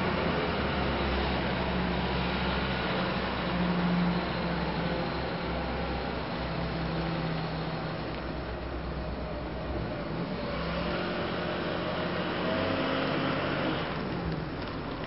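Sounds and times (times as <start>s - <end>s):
wheel loader diesel engine: 0.0s - 15.0s.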